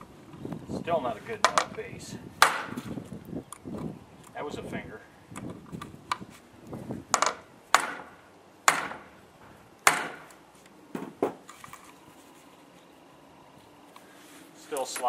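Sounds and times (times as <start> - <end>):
hammer striking metal punch: 2.4 - 2.8, 7.2 - 9.1, 9.9 - 10.3.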